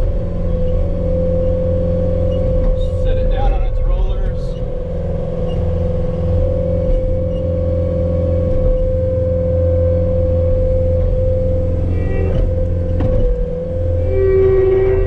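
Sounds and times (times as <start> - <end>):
engine hum: 0.0 - 15.0
hydraulic whine: 0.0 - 15.0.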